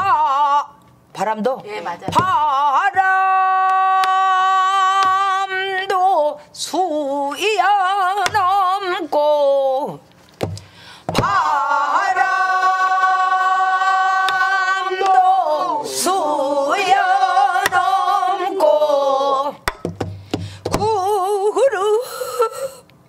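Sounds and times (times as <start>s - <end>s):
person singing with vibrato: 0.0s - 0.8s, 2.2s - 10.0s, 11.1s - 19.7s.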